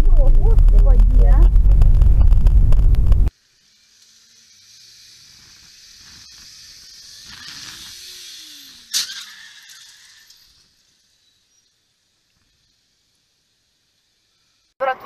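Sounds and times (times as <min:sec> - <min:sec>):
car road noise: 0:00.0 - 0:03.3.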